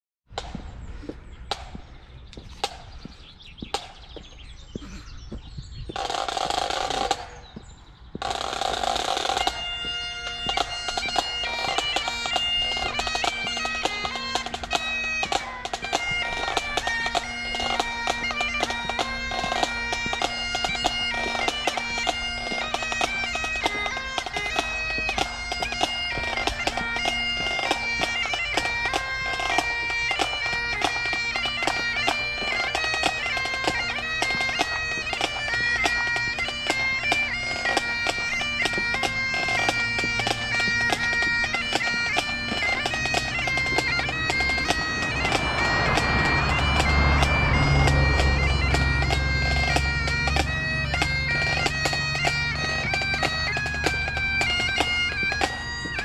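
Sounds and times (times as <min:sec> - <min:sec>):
bagpipes playing over drone: 0:00.4 - 0:56.0
bursts of rushing noise: 0:42.8 - 0:51.0.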